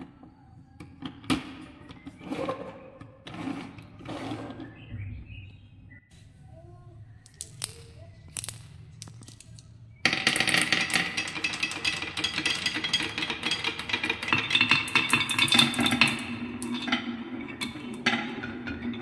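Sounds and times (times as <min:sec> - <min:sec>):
marbles clattering down wooden run: 0:07.3 - 0:18.3.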